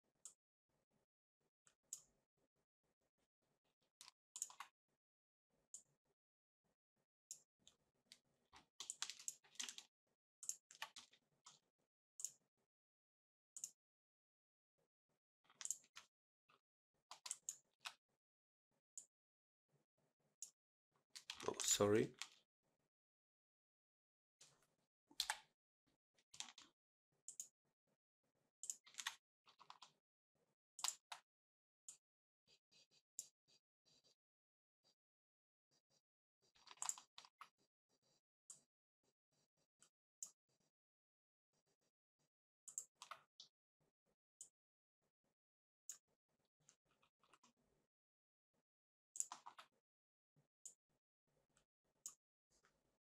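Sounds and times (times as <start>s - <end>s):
mouse and keyboard clicks: 4.4s - 4.7s, 15.5s - 16.1s, 25.2s - 25.5s, 30.8s - 31.2s, 36.6s - 37.3s, 49.2s - 49.7s.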